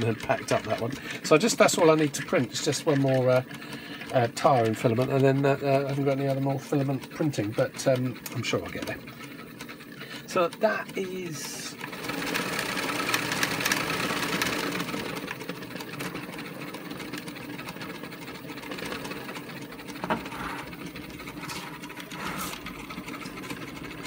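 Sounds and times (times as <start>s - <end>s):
small electric motor running: 0.0s - 24.0s
plastic parts knocking: 19.8s - 23.5s.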